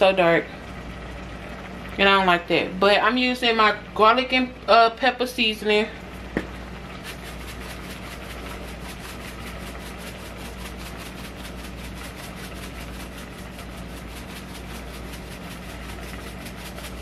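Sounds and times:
small motor or fan running: 0.0 - 17.0.

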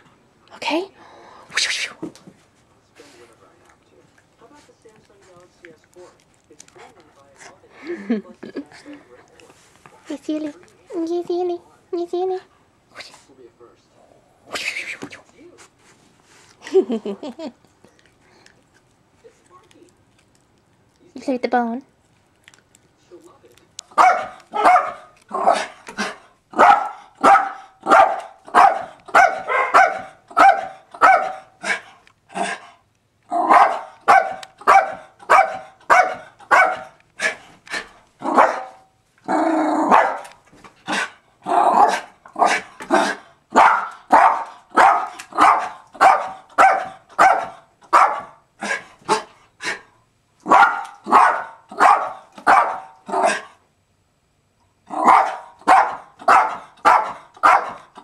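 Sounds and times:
dog barking rapidly: 23.9 - 31.8, 33.4 - 37.4, 38.2 - 38.8, 39.9 - 40.3, 41.7 - 49.3, 50.4 - 53.5, 54.9 - 58.0.

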